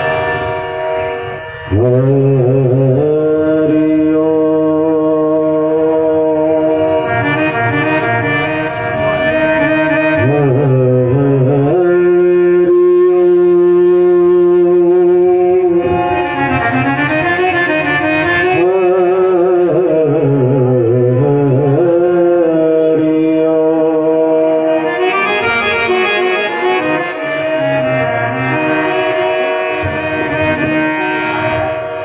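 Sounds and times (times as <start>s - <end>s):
harmonium: 0.0s - 32.0s
man singing: 1.7s - 28.6s.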